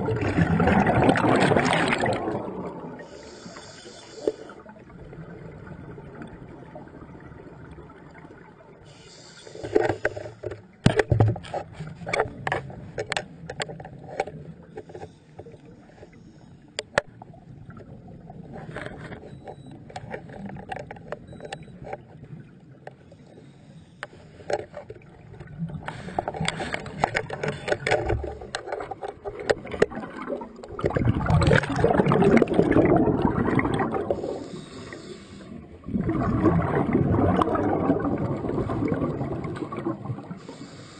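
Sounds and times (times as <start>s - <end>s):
water rushing: 0.0s - 7.0s, 24.8s - 40.7s
water sloshing and gurgling: 0.0s - 40.9s
sharp clicks and knocks: 9.6s - 16.1s, 16.8s - 17.1s, 18.7s - 22.1s, 25.8s - 30.0s.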